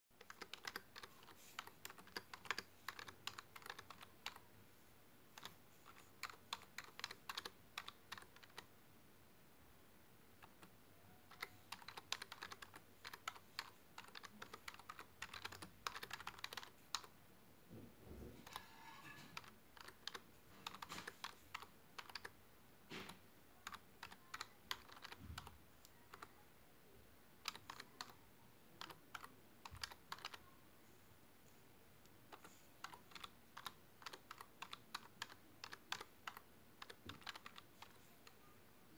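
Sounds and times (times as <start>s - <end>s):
typing on a computer keyboard: 0.2s - 4.5s, 5.3s - 8.7s, 10.4s - 17.1s, 18.4s - 22.4s, 23.0s - 26.4s, 27.4s - 28.2s, 28.8s - 30.5s, 32.3s - 38.5s.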